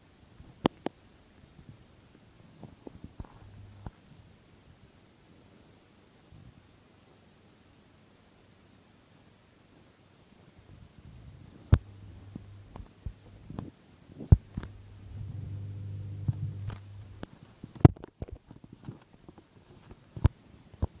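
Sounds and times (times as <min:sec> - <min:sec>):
low steady hum: 0:01.2 - 0:04.5, 0:10.8 - 0:18.1.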